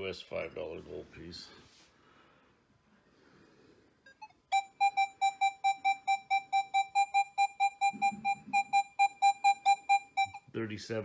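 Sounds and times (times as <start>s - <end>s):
metal detector beeps: 4.1s - 10.5s.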